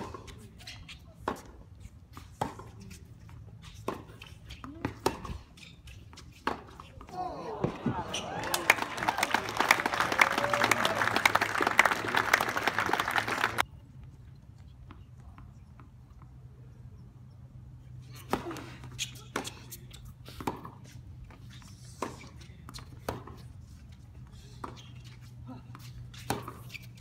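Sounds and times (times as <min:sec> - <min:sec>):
crowd murmur: 0:07.1 - 0:13.6.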